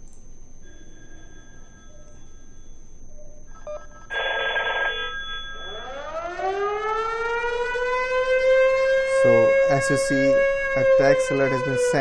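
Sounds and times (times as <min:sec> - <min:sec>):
siren wail from phone speaker: 0:03.5 - 0:12.0
short phone buzz: 0:04.0 - 0:05.8.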